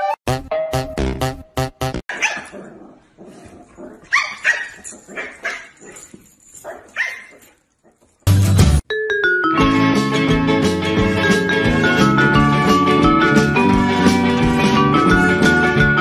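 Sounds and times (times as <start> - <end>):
dog barking: 2.1 - 2.7, 4.1 - 6.0, 6.6 - 8.1.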